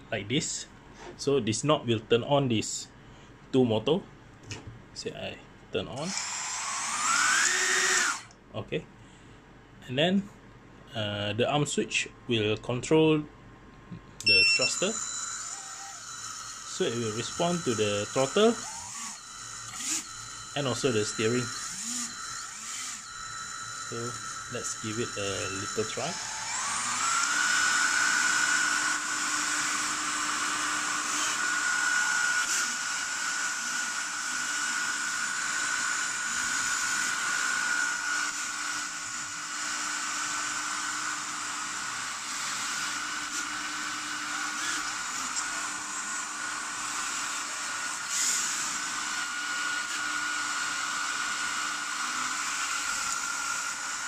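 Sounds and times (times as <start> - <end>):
small motors whining: 6.0 - 8.4, 14.3 - 54.0.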